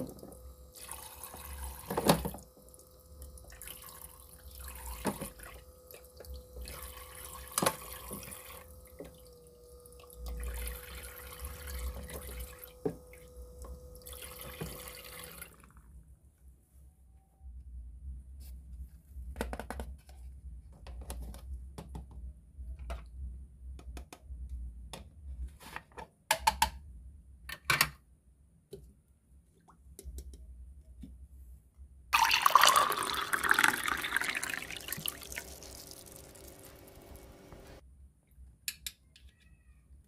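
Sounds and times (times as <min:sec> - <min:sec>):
liquid pouring into plastic pot: 0:32.2 - 0:37.7.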